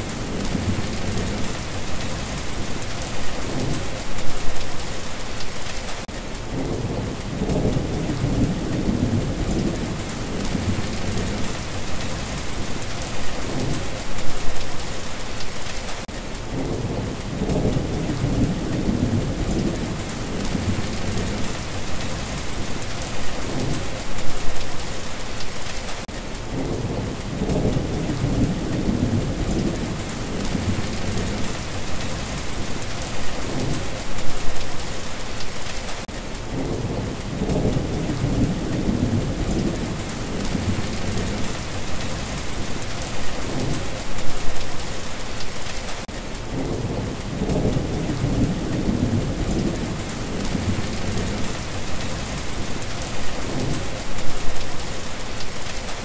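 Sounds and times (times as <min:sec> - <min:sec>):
steady rain: 0:00.0 - 0:56.0
thunder rumbling: 0:06.5 - 0:14.6, 0:16.5 - 0:24.6, 0:26.5 - 0:34.8, 0:36.5 - 0:44.6, 0:46.5 - 0:55.6.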